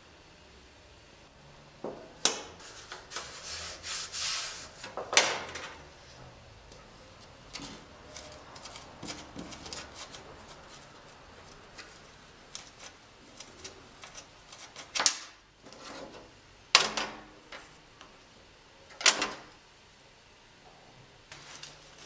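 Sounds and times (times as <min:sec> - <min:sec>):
small clicks and scrapes: 0:07.2 - 0:16.3.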